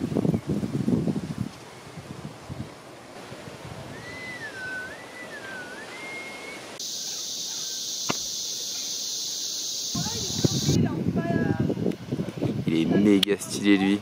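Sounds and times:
long whistle: 0:03.9 - 0:10.8
insects droning: 0:06.6 - 0:10.8
steady hiss: 0:06.6 - 0:10.8
sharp click: 0:08.0 - 0:08.3.

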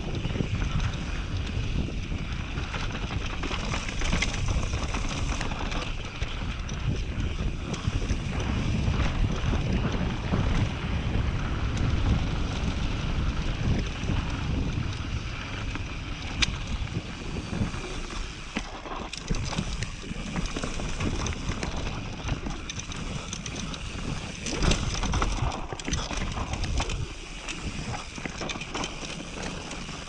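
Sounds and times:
bike rattles and ticks: 0:00.0 - 0:30.0
wind buffeting microphone: 0:00.0 - 0:30.0.

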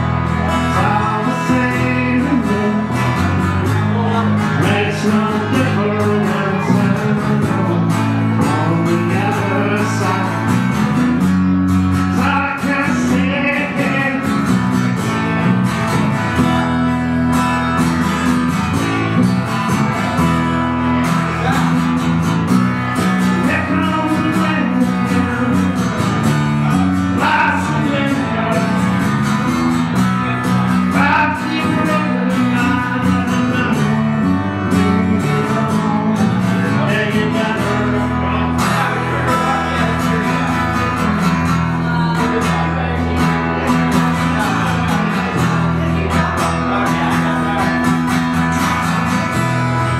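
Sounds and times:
acoustic guitar music: 0:00.0 - 0:49.9.

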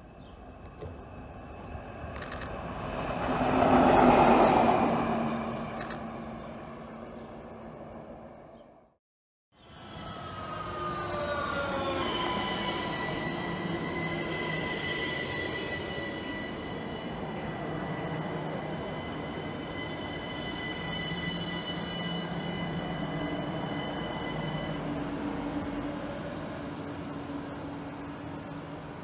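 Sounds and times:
train rumbling: 0:00.0 - 0:08.6
train high whine: 0:09.6 - 0:29.0.

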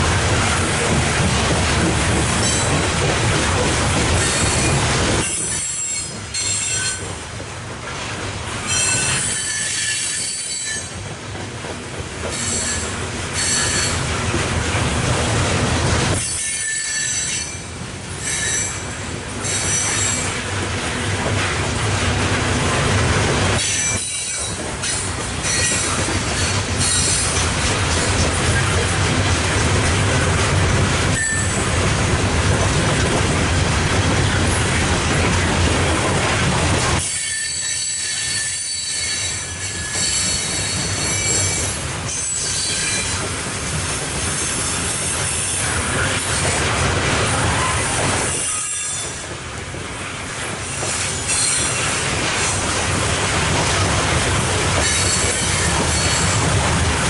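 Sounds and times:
train wheels rumbling on rail: 0:00.0 - 0:57.0
high-pitched wheel squeal: 0:08.7 - 0:10.9, 0:12.3 - 0:14.0, 0:16.2 - 0:20.3, 0:31.2 - 0:31.6, 0:37.0 - 0:43.2.

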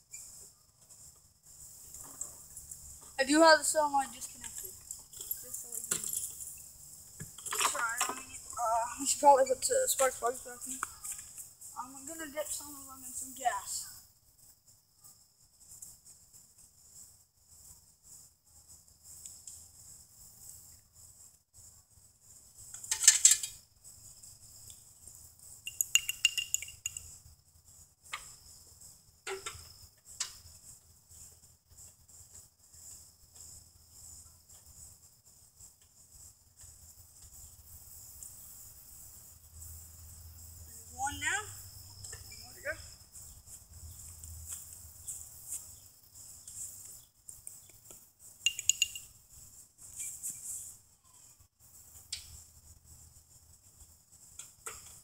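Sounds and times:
insects chirring: 0:00.0 - 0:55.0
metal parts and tools clinking: 0:22.9 - 0:23.6, 0:25.7 - 0:27.1, 0:48.5 - 0:49.1.

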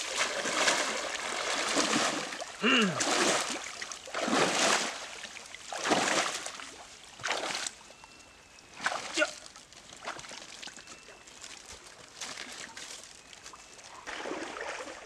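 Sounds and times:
water splashing from wading: 0:00.0 - 0:07.8, 0:13.9 - 0:15.0.

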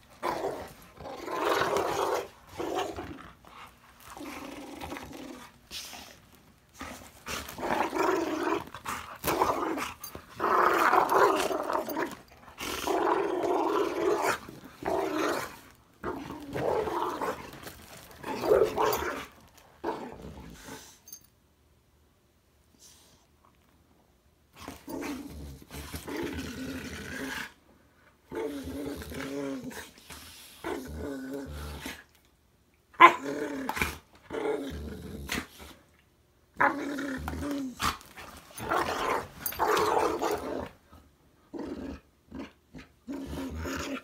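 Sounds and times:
dogs growling: 0:00.1 - 0:21.0, 0:41.5 - 0:44.0.

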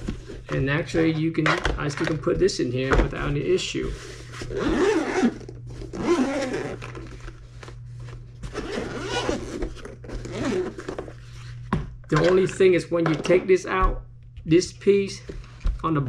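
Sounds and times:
steady low hum: 0:00.0 - 0:16.0
zipper being pulled: 0:04.4 - 0:07.1, 0:08.4 - 0:10.9.

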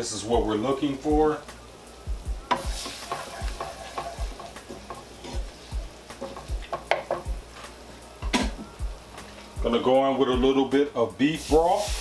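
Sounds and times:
roux sizzling in a skillet: 0:00.0 - 0:12.0
utensil scraping a pan: 0:02.5 - 0:07.3.

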